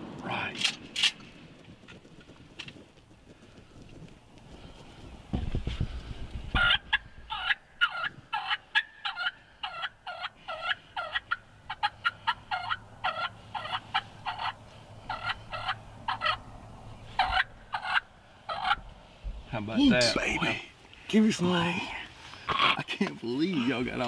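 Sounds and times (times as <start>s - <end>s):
turkey calling: 6.5s - 16.5s, 17.1s - 18.8s, 22.1s - 24.0s.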